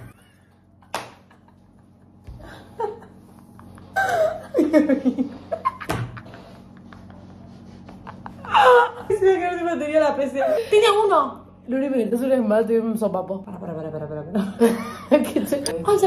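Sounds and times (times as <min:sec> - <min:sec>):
women laughing: 0:00.0 - 0:09.5, 0:13.7 - 0:15.6.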